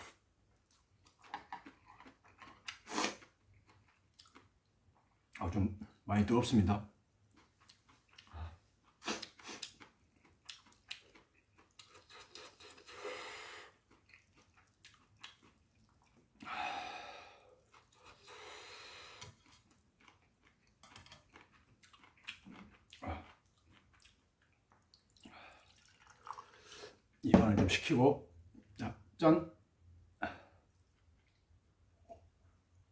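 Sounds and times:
chewing: 0.7s - 5.2s, 7.3s - 13.0s, 13.7s - 16.5s, 17.5s - 18.4s, 19.0s - 26.4s, 30.7s - 31.6s
slurping noodles: 2.7s - 3.3s
liquid pouring into a glass: 25.5s - 26.8s.

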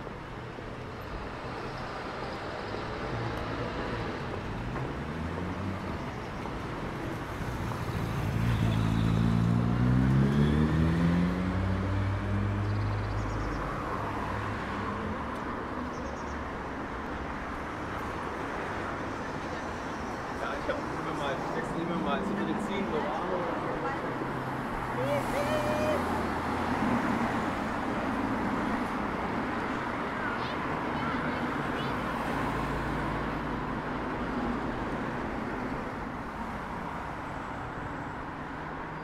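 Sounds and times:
steady traffic rumble: 0.0s - 39.0s
vehicle engine accelerating past: 8.7s - 13.0s.

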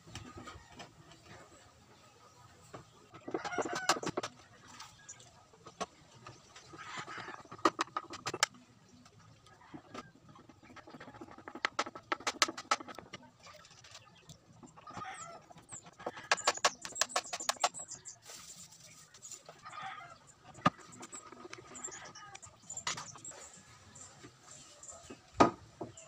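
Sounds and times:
chicken clucking: 0.1s - 8.6s, 9.5s - 18.1s.

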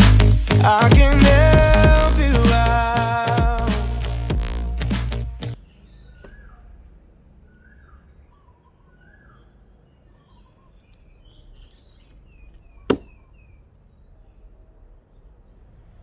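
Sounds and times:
birds chirping faintly: 5.5s - 16.0s
hatchet chopping wooden block: 12.9s - 13.2s.

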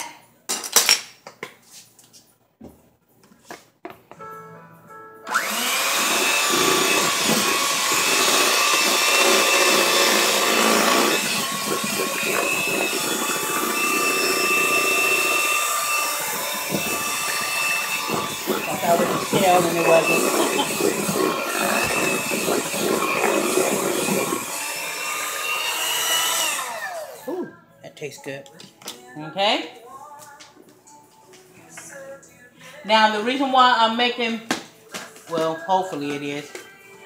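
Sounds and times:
electric hand mixer whining: 5.3s - 27.4s
kitchen utensils clinking: 16.2s - 24.5s.

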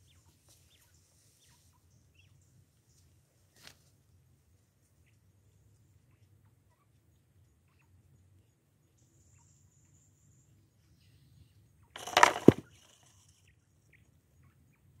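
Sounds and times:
basket trap clattering thump: 12.0s - 12.7s.

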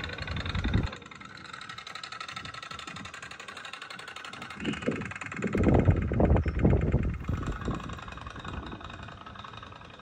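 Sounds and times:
wind on microphone: 0.0s - 1.0s, 4.6s - 9.2s.

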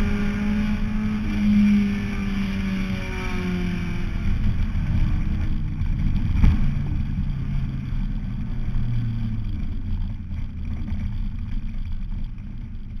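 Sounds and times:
car rumbling over dirt: 0.0s - 13.0s
race car engine running: 0.0s - 13.0s.

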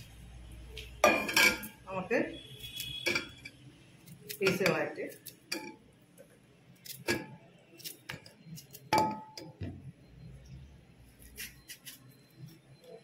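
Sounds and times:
knife cutting plantain: 11.2s - 12.6s.

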